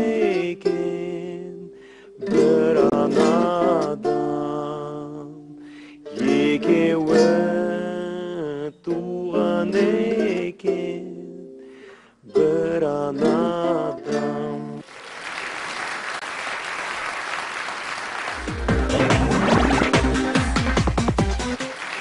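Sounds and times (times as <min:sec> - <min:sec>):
man singing: 0:00.0 - 0:11.6, 0:12.2 - 0:14.8
guitalele playing: 0:00.0 - 0:14.8, 0:18.4 - 0:21.2
audience applauding: 0:14.8 - 0:22.0
electronic jingle with heavy beat: 0:18.4 - 0:21.6.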